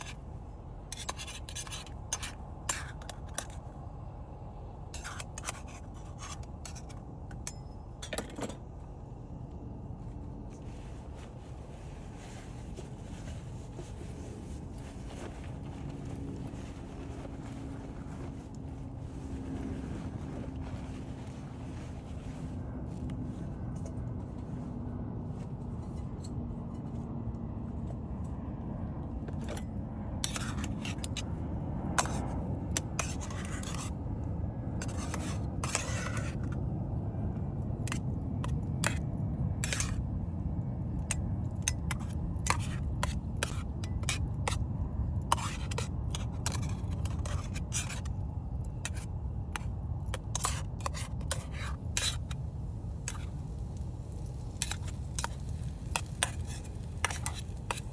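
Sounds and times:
tongs scraping a frying pan: 0:54.5 - 0:57.9.

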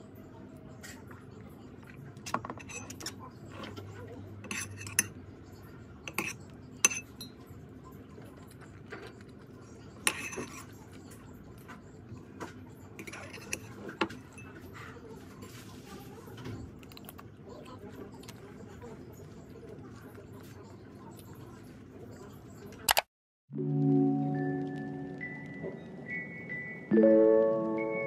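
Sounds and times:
metal spoon clinking against bowl: 0:02.2 - 0:03.2, 0:04.4 - 0:05.2, 0:06.0 - 0:07.4, 0:10.0 - 0:10.7, 0:13.0 - 0:14.7.

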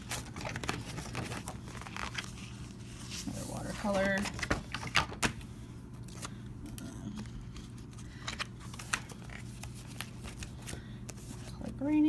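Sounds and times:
paper pages turning: 0:00.0 - 0:05.4, 0:06.0 - 0:11.7
low steady hum: 0:00.0 - 0:12.0.

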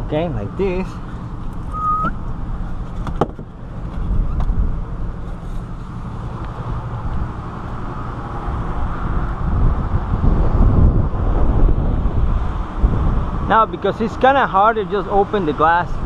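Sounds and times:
wind rumbling on microphone: 0:01.4 - 0:14.2
short high squeak: 0:01.7 - 0:02.2.

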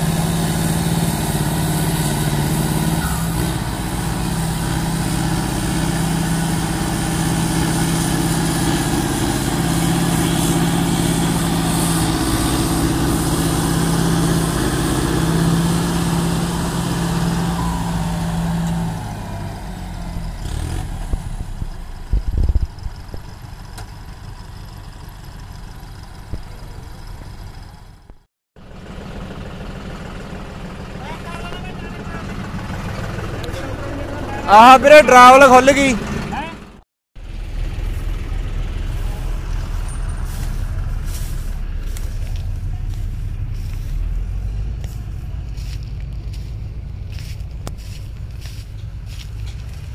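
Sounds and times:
diesel tractor engine running: 0:00.0 - 0:49.9.

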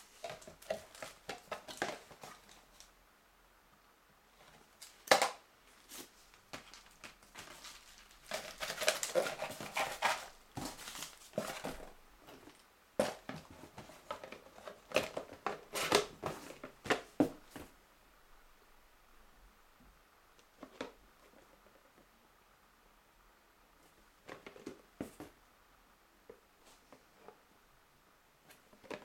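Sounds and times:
cardboard rustling and scraping: 0:05.7 - 0:17.7.

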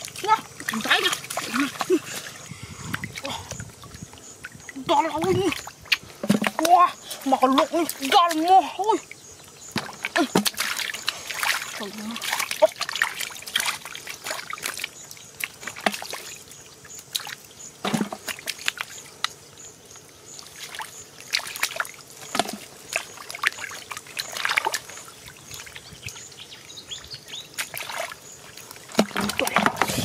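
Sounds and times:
splashing in muddy water: 0:00.0 - 0:19.5, 0:20.3 - 0:30.0.

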